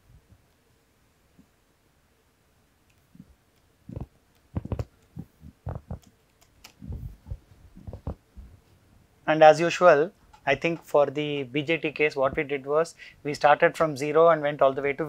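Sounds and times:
stylus tapping on drawing tablet: 3.9s - 6.1s.

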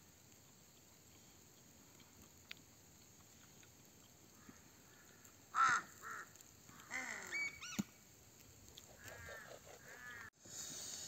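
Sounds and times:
crow cawing: 4.4s - 7.8s, 9.0s - 10.3s.

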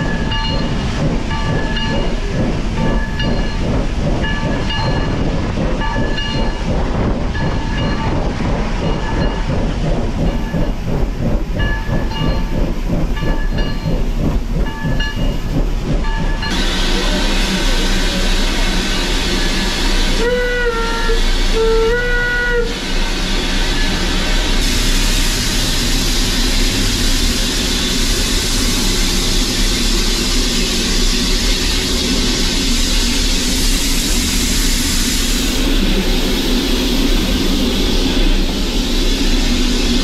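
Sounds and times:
steam locomotive rushing: 0.0s - 40.0s
steam whistle blasts: 20.1s - 23.0s.

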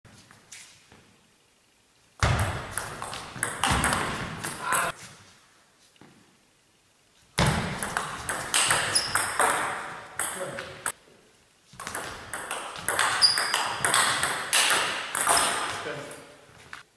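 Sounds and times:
table tennis ball rallies: 2.2s - 4.9s, 7.4s - 10.9s, 11.8s - 16.1s.

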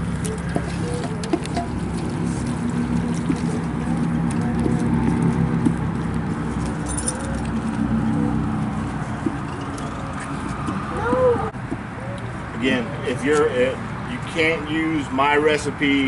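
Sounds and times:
low engine-like hum: 0.0s - 16.0s.

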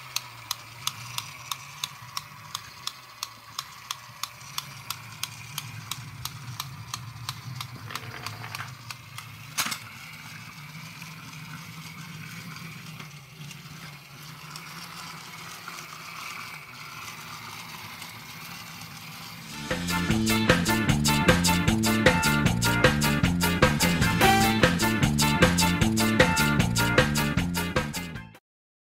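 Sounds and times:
toy motor and gears whirring: 0.0s - 24.2s
rhythmic plastic clicking: 0.0s - 28.0s.

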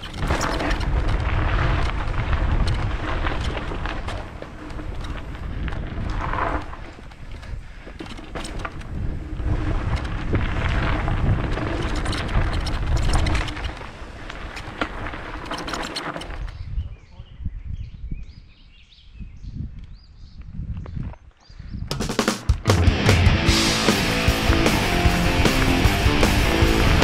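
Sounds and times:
bike rattling and clicking: 0.0s - 16.8s
wind rumbling on microphone: 0.0s - 21.9s.

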